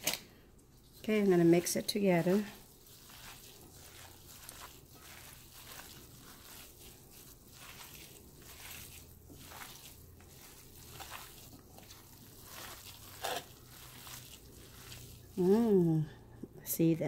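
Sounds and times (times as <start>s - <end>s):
soft squishing and rustling: 0.0s - 17.0s.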